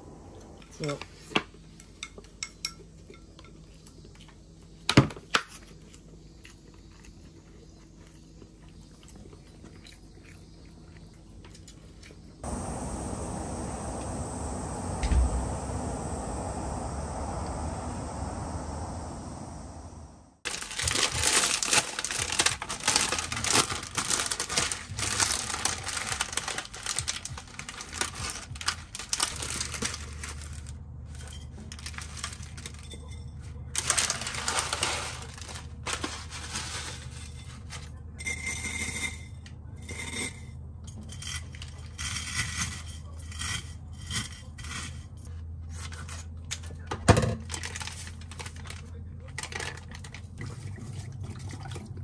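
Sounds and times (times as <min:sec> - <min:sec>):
low steady hum: 0:00.0 - 0:04.3, 0:05.9 - 0:41.7.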